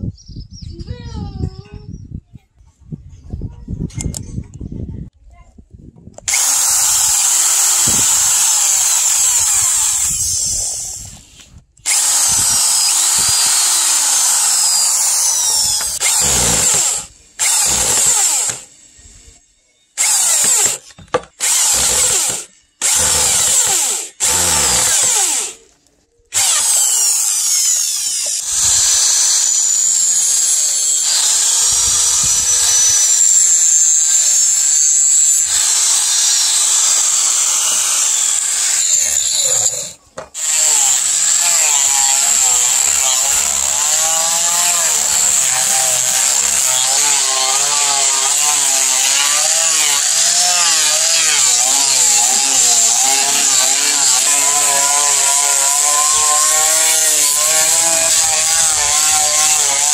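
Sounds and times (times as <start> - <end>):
angle grinder sanding wood: 6.3 - 18.8, 21.4 - 25.7, 26.4 - 59.9
electric drill boring: 6.3 - 19.2, 20.0 - 25.7, 26.3 - 59.9.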